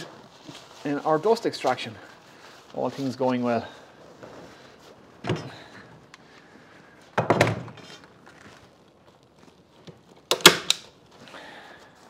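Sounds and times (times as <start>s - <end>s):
staple gun snaps: 10.3s - 10.8s.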